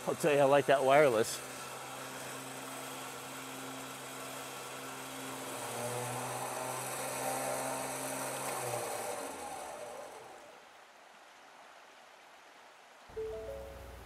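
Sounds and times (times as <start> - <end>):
electric winch running: 0.0 - 10.6.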